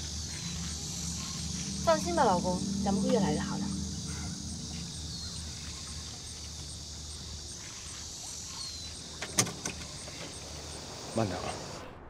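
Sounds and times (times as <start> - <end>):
constant high hiss: 0.0 - 12.0
insects chirping: 0.0 - 12.0.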